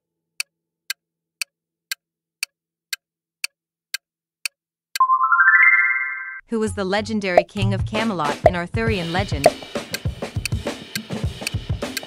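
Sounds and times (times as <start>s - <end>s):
rising electronic tone: 5.0s - 6.4s
clock ticking: 7.4s - 12.0s.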